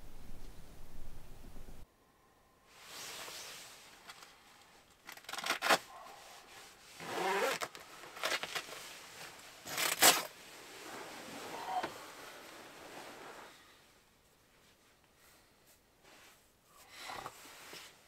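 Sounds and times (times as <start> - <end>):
sleeping bag nylon rustling: 2.7 - 4.4, 5.3 - 13.8.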